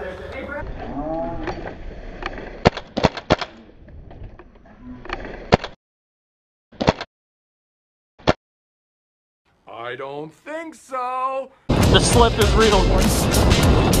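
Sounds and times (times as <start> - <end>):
airsoft rifle shots: 2.6 - 3.6.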